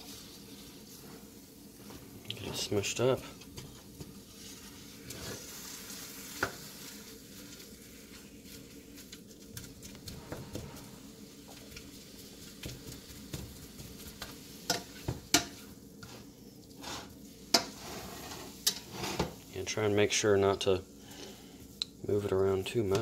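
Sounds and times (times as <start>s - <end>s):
meat sizzling in a skillet: 0.0s - 23.0s
spatula scraping and tapping pan: 2.3s - 19.4s.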